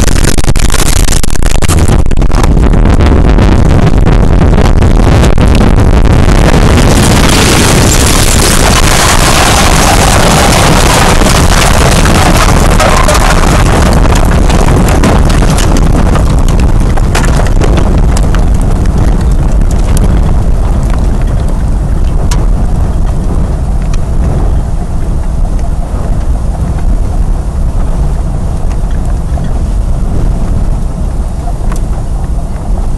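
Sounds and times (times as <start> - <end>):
loud rushing wind: 0.0 - 32.9
debris clattering: 6.8 - 21.6.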